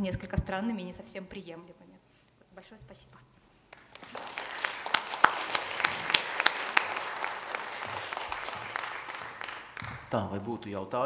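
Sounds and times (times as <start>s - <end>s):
audience applauding: 3.7s - 10.4s.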